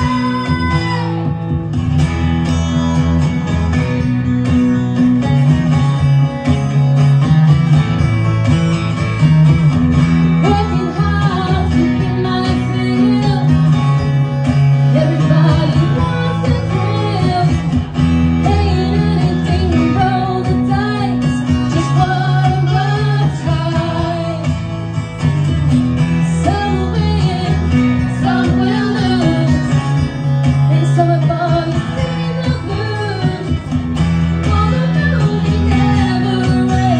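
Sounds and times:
woman singing into a microphone: 0.0 - 1.6, 10.3 - 24.7, 26.2 - 36.9
acoustic guitar: 0.0 - 36.9.

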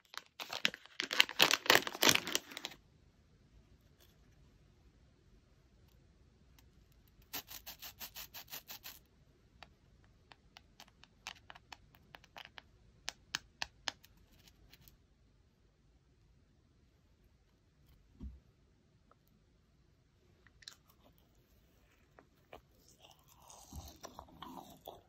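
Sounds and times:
marshmallows scratching between fingers: 7.2 - 9.0.

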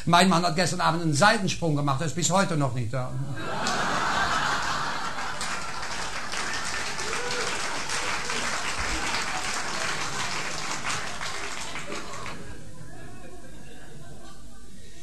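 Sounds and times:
audience applauding: 3.6 - 12.6.

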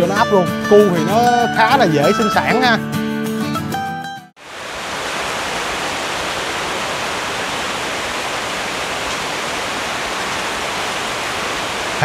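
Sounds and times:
heavy rain: 4.4 - 12.0.

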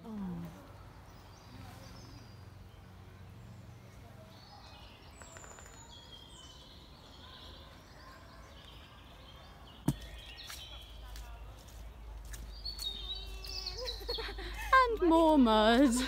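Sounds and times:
birds chirping and whistling: 12.5 - 14.6.

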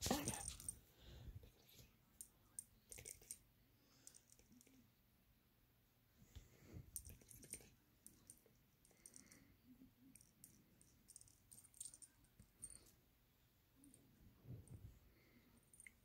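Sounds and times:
small bell jingling: 11.1 - 12.9
soft low rubbing: 13.8 - 15.4.

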